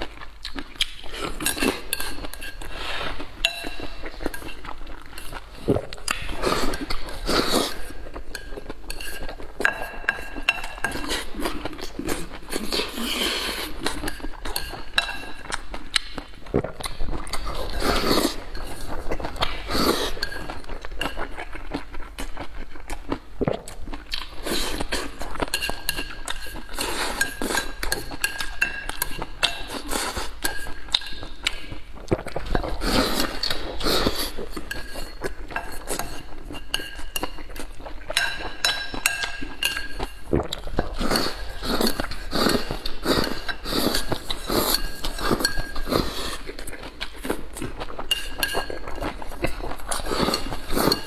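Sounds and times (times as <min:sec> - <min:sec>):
close-up chewing: 0:00.0 - 0:51.0
chopsticks clinking on ceramic bowl: 0:03.4 - 0:04.6, 0:38.1 - 0:40.2, 0:41.0 - 0:46.1, 0:48.1 - 0:49.2.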